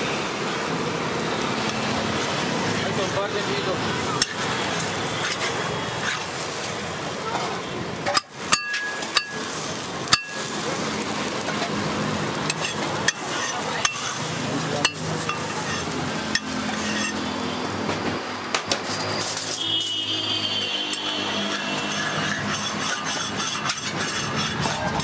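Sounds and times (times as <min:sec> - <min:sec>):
griddle sizzling and crackling: 0:00.0 - 0:25.0
metal utensils clinking on plates: 0:08.0 - 0:10.6, 0:12.4 - 0:17.3, 0:20.9 - 0:25.0.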